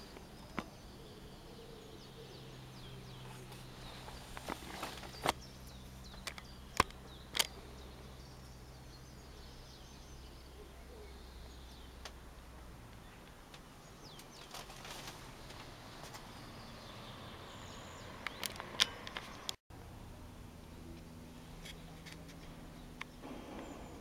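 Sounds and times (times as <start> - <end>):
faint bird chirps: 0.0 - 12.0
distant propeller aircraft droning: 0.0 - 24.0
sharp clicks: 6.1 - 7.6, 18.2 - 19.6.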